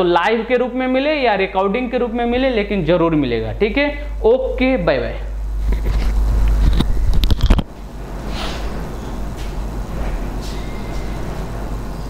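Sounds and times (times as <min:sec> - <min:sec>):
low background hum: 0:00.0 - 0:12.0
lapel microphone handling noise: 0:05.6 - 0:07.8.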